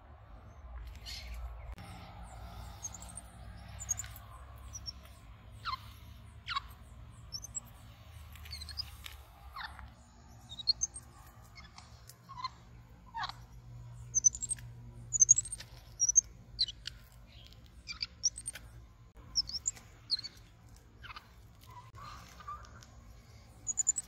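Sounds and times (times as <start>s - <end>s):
faint high chirps: 0.8s - 24.0s
animal squeaks sliding downward: 3.8s - 4.1s, 7.3s - 7.6s, 14.2s - 16.2s, 23.7s - 24.0s.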